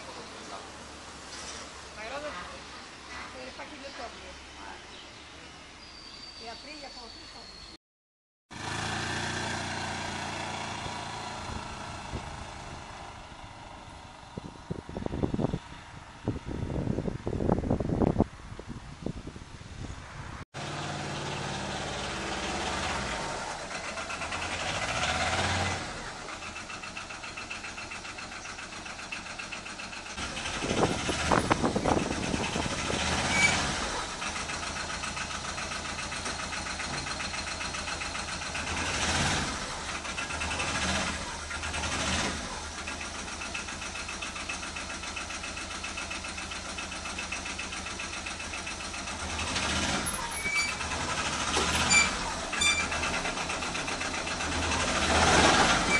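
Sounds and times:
quad bike engine idling: 25.9 - 32.7, 33.9 - 38.9, 39.6 - 55.0.

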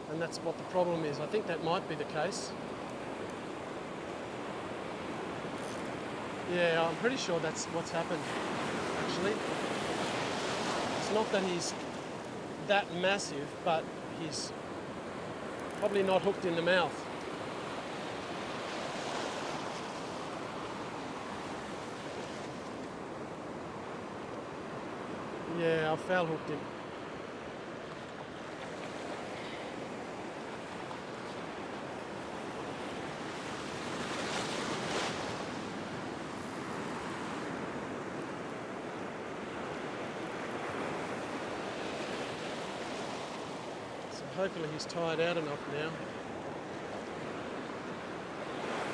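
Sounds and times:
ocean surf washing over sand: 0.0 - 48.9.

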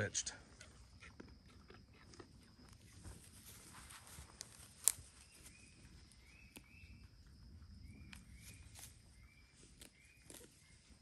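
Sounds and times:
goat cropping grass: 1.0 - 6.8, 8.1 - 11.0.

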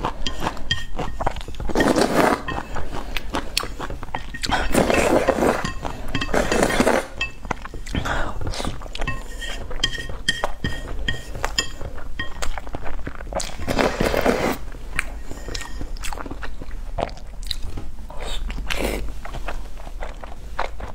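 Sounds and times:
slurping noodles: 1.6 - 7.2, 13.4 - 14.7.

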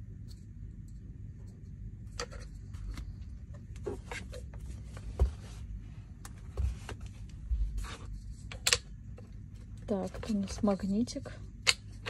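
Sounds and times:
plastic parts clicking and knocking: 8.5 - 10.8.

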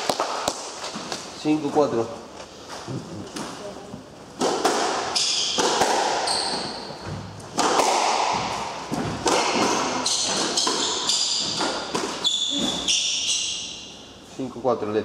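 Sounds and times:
squash ball struck by rackets: 4.4 - 13.0
shoes squeaking on hardwood: 6.2 - 7.4, 10.0 - 13.8
ball smacking off walls: 7.1 - 12.2.

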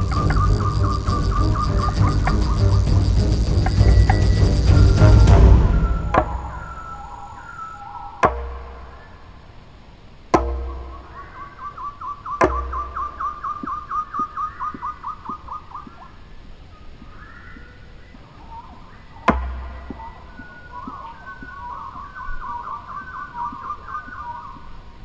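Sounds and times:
deep soundtrack hits: 0.0 - 7.6
bird calling rapid notes: 0.0 - 9.4, 10.4 - 16.2, 16.9 - 24.8.

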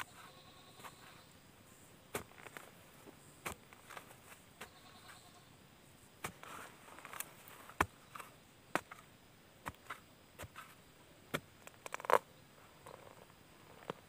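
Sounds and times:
earth and grass scraping: 0.0 - 14.0
stick knocking into soil: 2.1 - 2.7, 3.4 - 4.7, 6.2 - 12.2.

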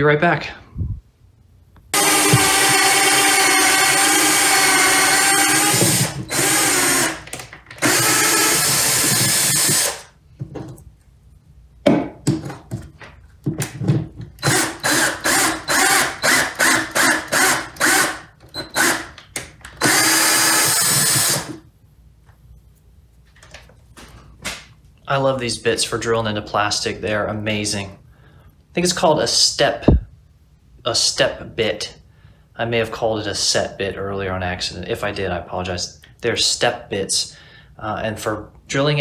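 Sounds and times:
drill bit boring through plastic: 2.0 - 10.1, 14.4 - 19.1, 19.8 - 21.6
electric drill motor whining: 2.0 - 10.1, 14.4 - 21.6.

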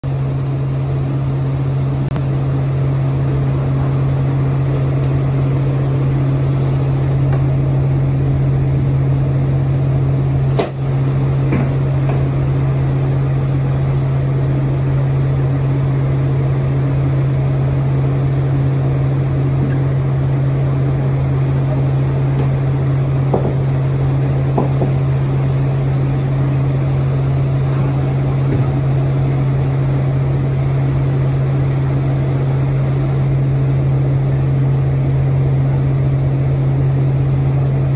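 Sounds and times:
hydraulic power unit droning: 0.0 - 37.9.

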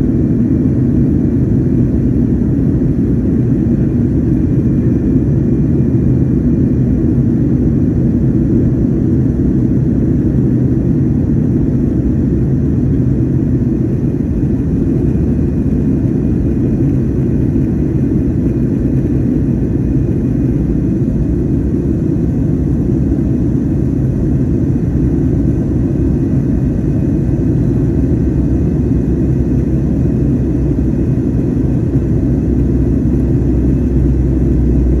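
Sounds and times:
jet engines and airflow rumble: 0.0 - 35.0.

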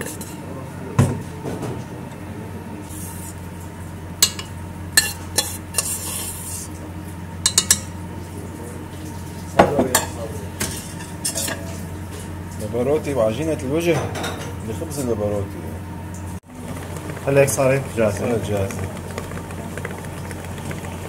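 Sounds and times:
beater clinking against metal bowl: 7.4 - 8.0
stand mixer motor hum: 16.4 - 21.0.

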